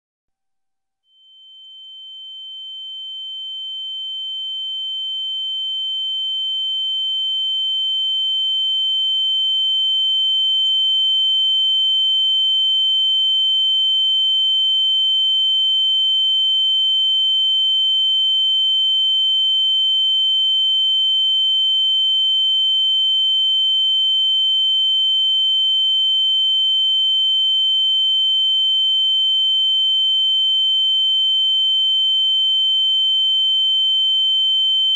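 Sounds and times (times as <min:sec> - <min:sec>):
high-pitched ringing tone: 0:01.1 - 0:07.7.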